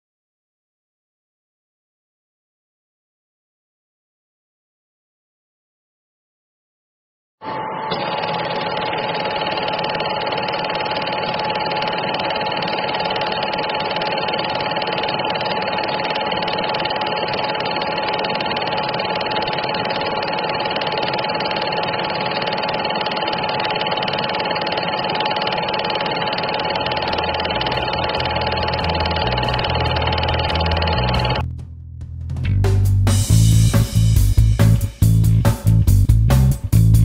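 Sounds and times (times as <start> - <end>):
film projector whirring: 7.9 - 31.4.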